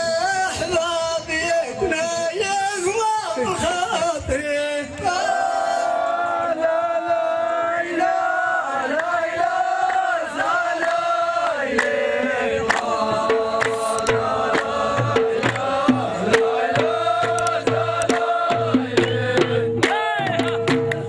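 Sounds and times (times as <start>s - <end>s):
men chanting in chorus: 3.5s - 21.0s
hand-beaten frame drums: 11.8s - 21.0s.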